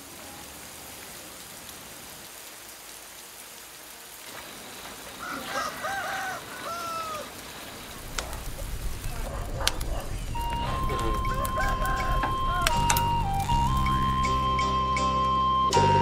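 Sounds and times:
steady rain: 0:00.0 - 0:16.0
rooster crowing: 0:05.2 - 0:14.6.

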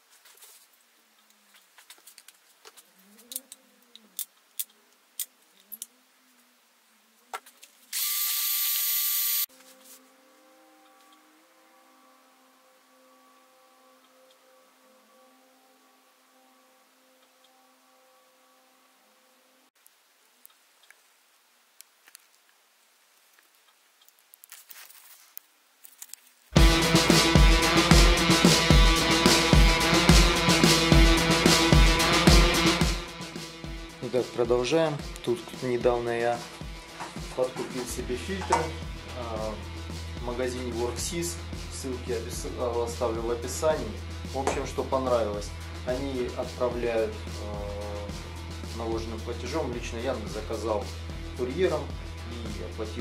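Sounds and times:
cordless drill whine: 0:07.9 - 0:09.5.

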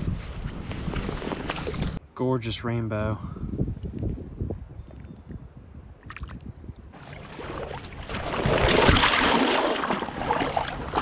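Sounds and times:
creek water splashing: 0:06.1 - 0:11.0.

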